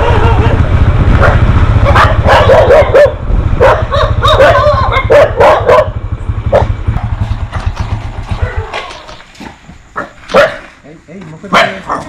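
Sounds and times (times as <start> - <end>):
motorcycle engine running: 0.0 - 12.0
dog barking: 1.2 - 6.8, 8.3 - 9.1, 9.9 - 10.8, 11.5 - 12.0.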